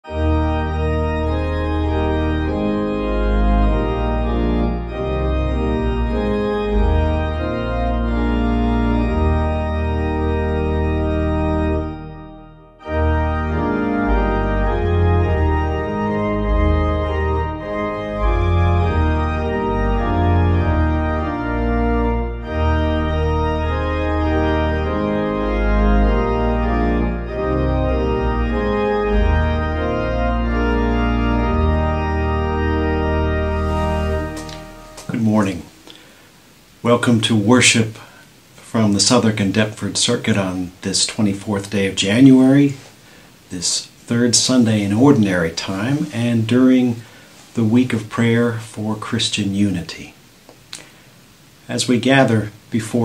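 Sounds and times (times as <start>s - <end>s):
organ music: 0.0s - 50.4s, 51.0s - 53.0s.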